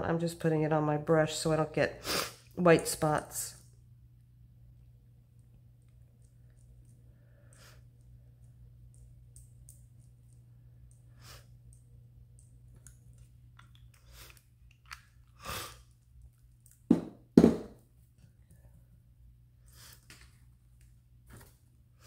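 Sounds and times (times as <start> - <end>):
low steady hum: 0.0 - 22.0
loud knocks on table: 16.9 - 17.8.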